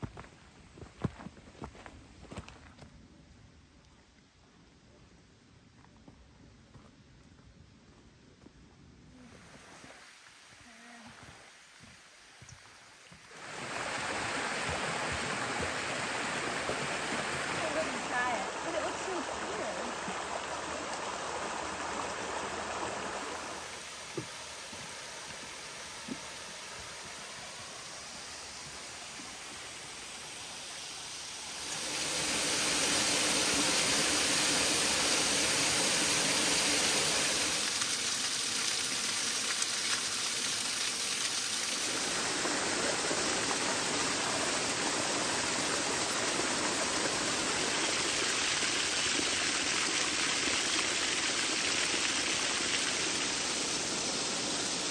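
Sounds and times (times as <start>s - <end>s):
small waterfall cascading: 9.3s - 54.9s
water rushing over rocks: 13.1s - 54.9s.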